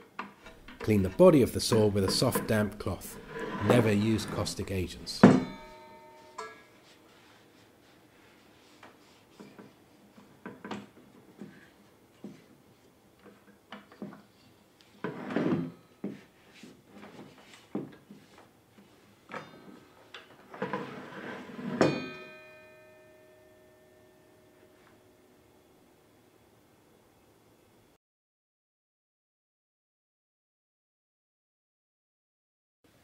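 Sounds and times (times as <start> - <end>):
rubbing: 0.4 - 5.7
ringing metallic clank: 0.4 - 6.8, 21.8 - 24.5.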